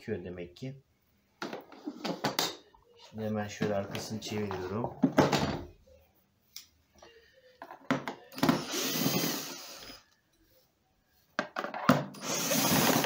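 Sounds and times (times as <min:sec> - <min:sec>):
cordless drill running: 0:12.2 - 0:13.0.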